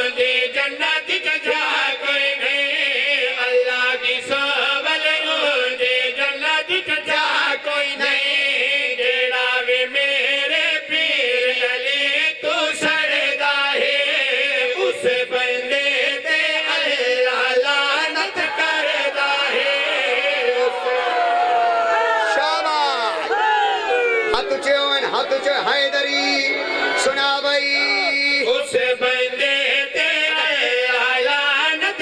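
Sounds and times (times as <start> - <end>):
men chanting in unison: 0.0 - 23.4, 24.4 - 32.0.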